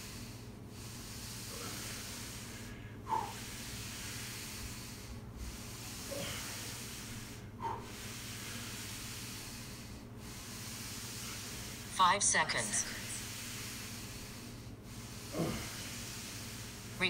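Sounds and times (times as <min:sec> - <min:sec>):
man breathing out sharply: 0:00.0 - 0:11.8
steady hiss: 0:00.0 - 0:17.0.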